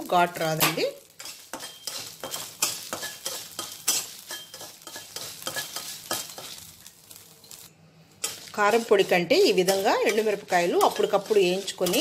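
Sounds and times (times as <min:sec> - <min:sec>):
chillies sizzling: 0:00.0 - 0:12.0
spatula scraping pan: 0:01.1 - 0:06.7, 0:08.2 - 0:12.0.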